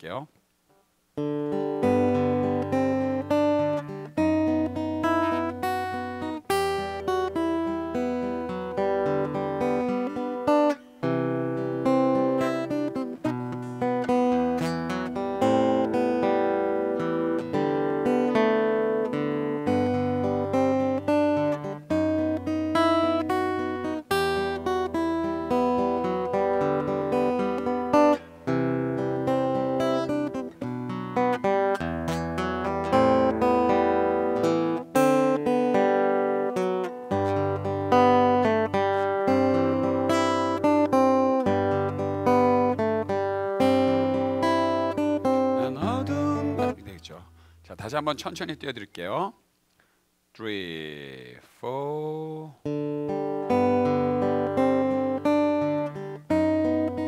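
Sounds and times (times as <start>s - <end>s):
fingerstyle acoustic guitar: 0.7s - 48.8s, 51.9s - 57.0s.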